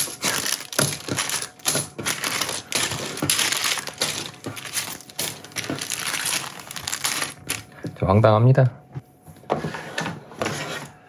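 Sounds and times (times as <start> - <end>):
plastic blocks clicking: 0.0 - 7.6
plastic bags crinkling: 0.0 - 7.8.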